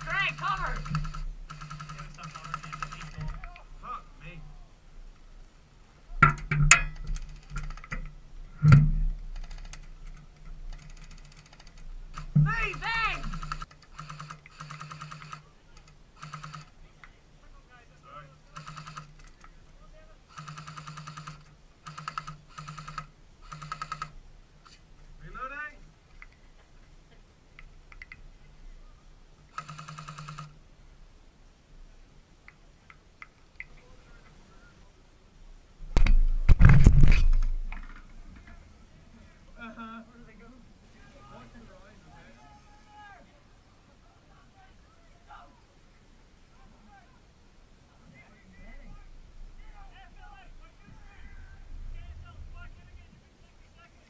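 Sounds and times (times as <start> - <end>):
airsoft guns firing: 0.0 - 3.6, 10.7 - 15.4
rapid clicking: 0.0 - 3.6, 6.2 - 8.2, 9.3 - 16.8, 20.3 - 24.2.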